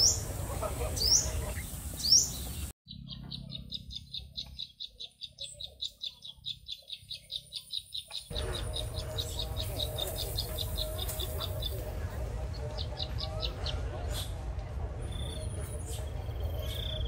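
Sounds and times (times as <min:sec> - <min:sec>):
birds chirping: 0:00.0 - 0:17.0
rushing background noise: 0:08.3 - 0:17.0.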